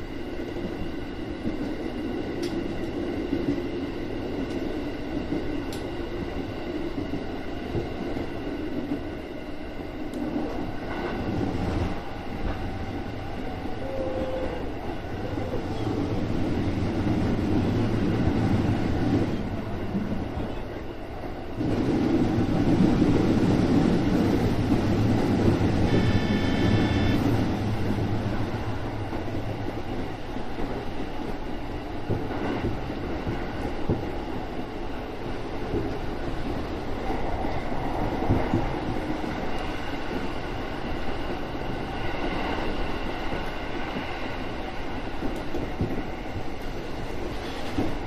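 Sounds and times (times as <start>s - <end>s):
train wheels rumbling: 0.0s - 48.0s
brief high tone: 25.9s - 27.3s.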